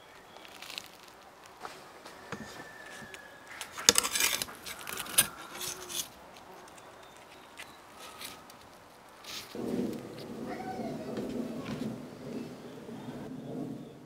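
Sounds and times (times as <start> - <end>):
knife scraping on metal skewer: 3.6 - 8.4.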